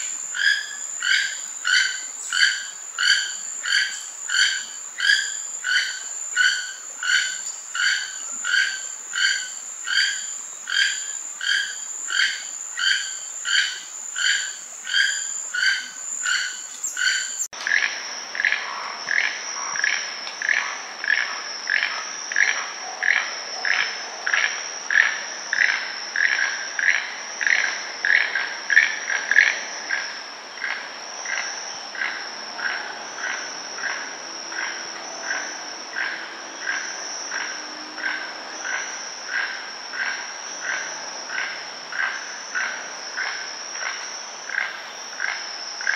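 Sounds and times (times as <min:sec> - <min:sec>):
toucan croaking calls: 0:00.0 - 0:22.5
high insect drone: 0:00.0 - 0:45.9.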